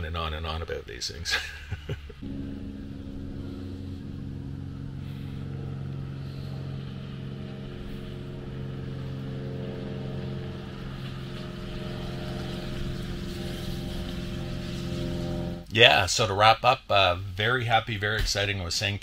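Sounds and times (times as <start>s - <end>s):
engine idling: 2.2s - 15.6s.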